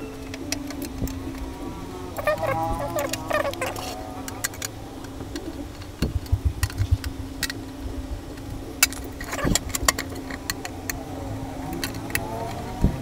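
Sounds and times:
steady low hum: 0:00.0 - 0:13.0
metal clicks and clacks: 0:08.4 - 0:11.0, 0:11.6 - 0:13.0.

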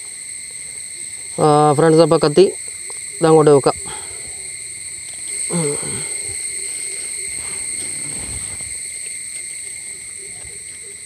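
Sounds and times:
crickets chirring: 0:00.0 - 0:11.0.

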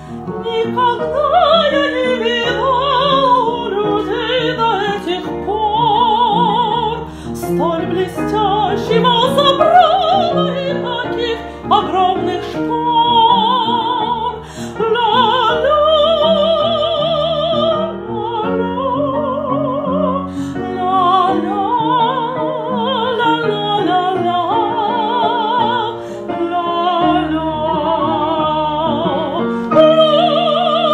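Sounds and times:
upright piano playing chords: 0:00.0 - 0:30.9.

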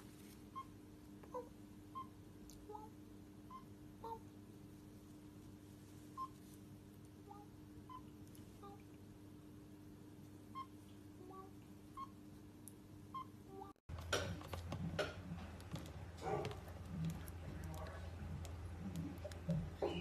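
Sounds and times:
rustling noise: 0:00.0 - 0:00.5.

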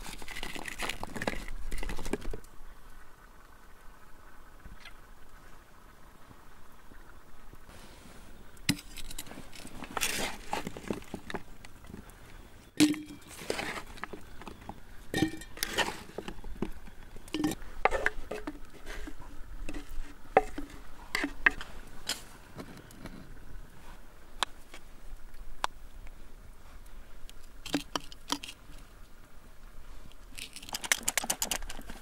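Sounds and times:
scraping from wooden bowl: 0:08.7 - 0:11.4, 0:12.8 - 0:23.2.

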